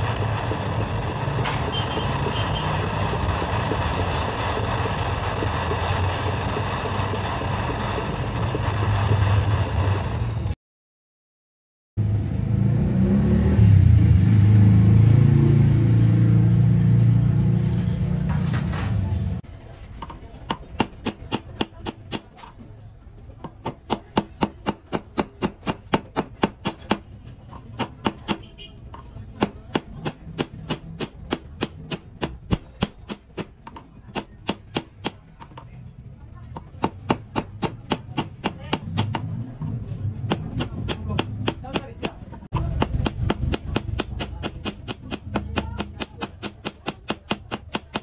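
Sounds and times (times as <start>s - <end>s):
small hammer tapping on metal: 40.3s - 48.0s.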